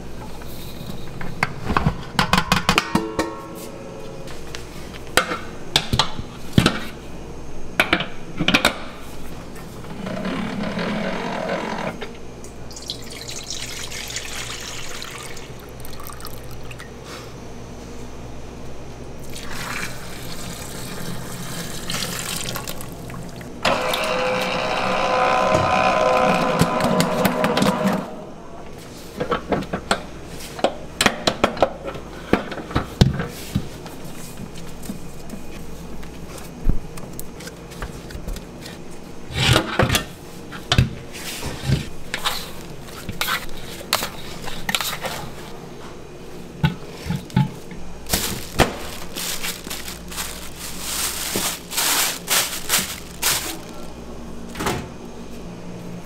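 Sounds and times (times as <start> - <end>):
water running into container: 12.7 - 16.8, 19.3 - 23.6
utensils clattering: 47.0 - 53.9.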